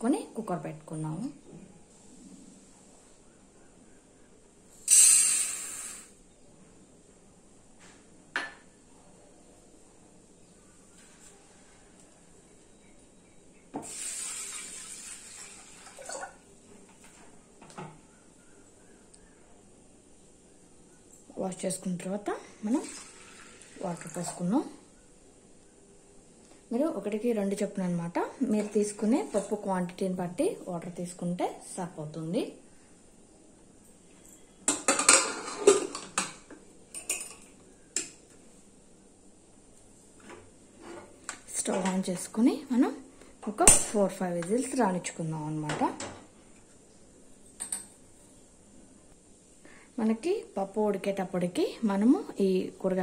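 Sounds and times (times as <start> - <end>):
water pouring and splashing: 13.8 - 16.5, 22.7 - 24.3.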